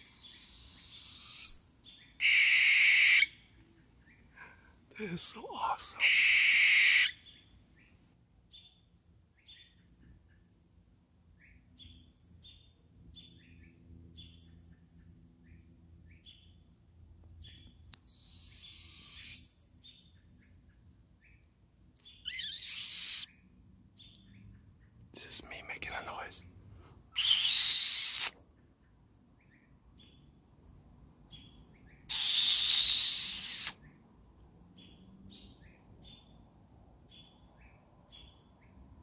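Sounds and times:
owl screeching: 0:00.1 - 0:01.6, 0:02.2 - 0:03.4, 0:05.9 - 0:07.4, 0:18.1 - 0:19.5, 0:22.3 - 0:23.3, 0:27.2 - 0:28.4, 0:32.1 - 0:33.8
short owl chirps: 0:00.1 - 0:01.6, 0:02.2 - 0:03.4, 0:05.6 - 0:07.4, 0:18.0 - 0:19.6, 0:22.0 - 0:23.3, 0:27.1 - 0:28.4, 0:32.1 - 0:33.9.

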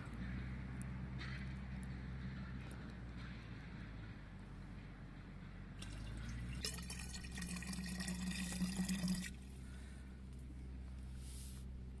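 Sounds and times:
water pouring into a jug: 0:05.8 - 0:09.4.

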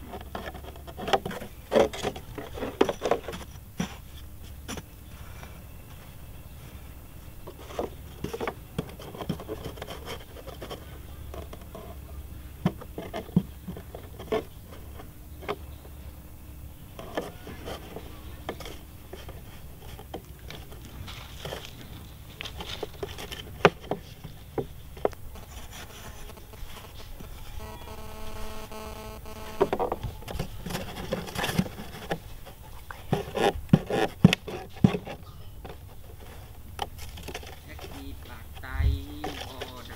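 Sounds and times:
hand tool scraping dry soil: 0:16.9 - 0:28.4, 0:29.3 - 0:39.9.

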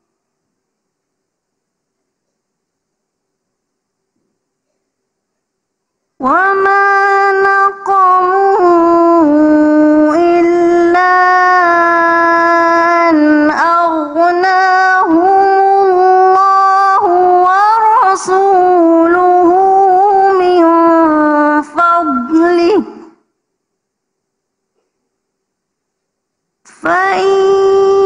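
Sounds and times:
woman reciting melodically: 0:06.2 - 0:23.4, 0:26.6 - 0:28.0.

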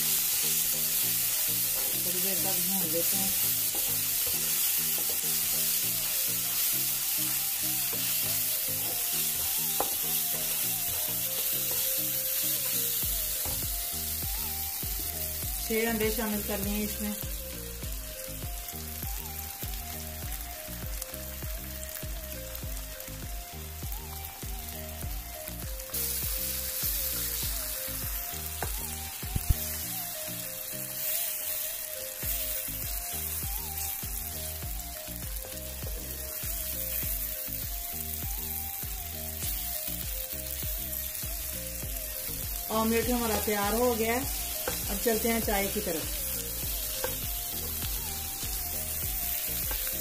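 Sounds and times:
background music with a beat: 0:00.0 - 0:50.0
eggs sizzling in a pan: 0:00.0 - 0:50.0
spatula stirring: 0:01.2 - 0:13.7, 0:43.0 - 0:50.0.

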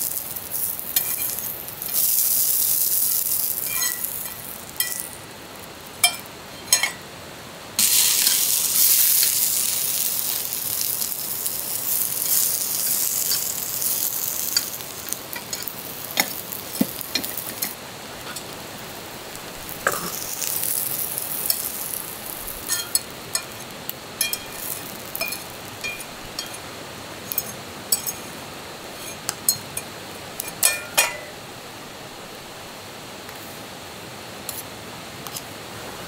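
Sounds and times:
food sizzling in pan: 0:00.0 - 0:07.1, 0:07.8 - 0:31.4
metal utensils tapping cookware: 0:03.7 - 0:05.1, 0:06.0 - 0:07.0, 0:22.7 - 0:23.6, 0:24.2 - 0:26.6, 0:27.3 - 0:28.3, 0:30.6 - 0:31.3.

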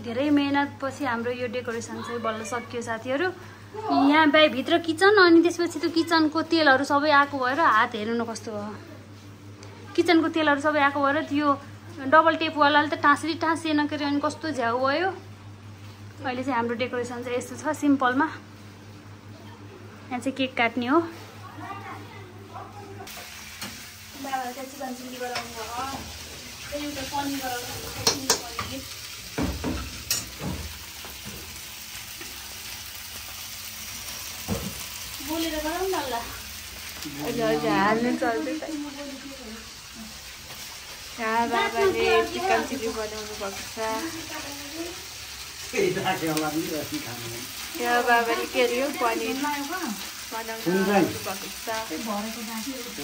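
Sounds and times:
people talking: 0:00.0 - 0:09.0, 0:24.2 - 0:26.1, 0:26.7 - 0:28.9, 0:37.0 - 0:40.1, 0:41.2 - 0:45.0, 0:45.8 - 0:53.0
food sizzling in hot oil: 0:23.0 - 0:53.0.

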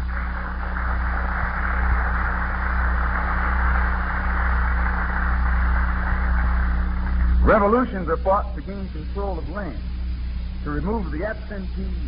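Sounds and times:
audience applauding: 0:00.0 - 0:07.5
low recording hum: 0:00.0 - 0:12.0.

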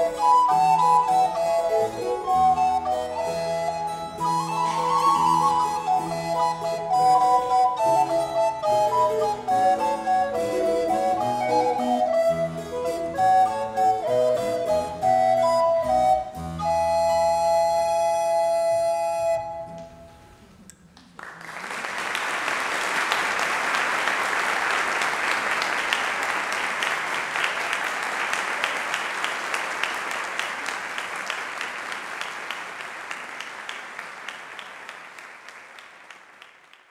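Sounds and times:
audience applause: 0:04.4 - 0:06.6, 0:21.0 - 0:36.9.

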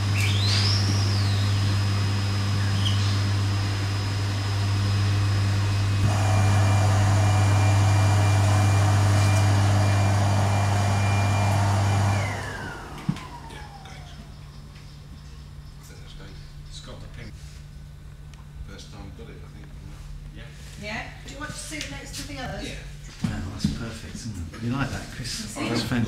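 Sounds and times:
motor spinning down: 0:00.0 - 0:14.3
vacuum motor humming and whining: 0:00.0 - 0:15.6.

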